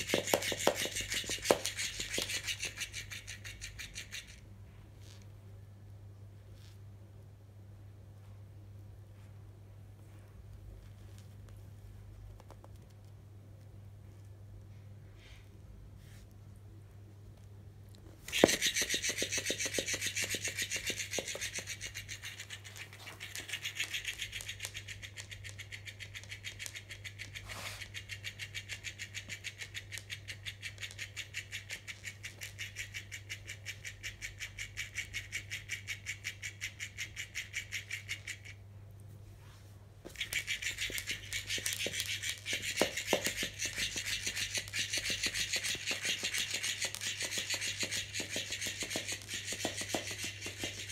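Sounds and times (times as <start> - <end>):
cat toy motor buzzing: 0.0 - 4.4, 18.3 - 38.6, 40.1 - 50.9.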